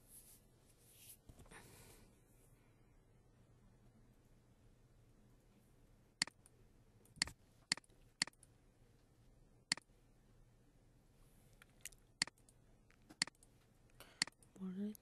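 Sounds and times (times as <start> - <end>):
computer mouse clicking: 7.1 - 8.5, 11.6 - 13.5.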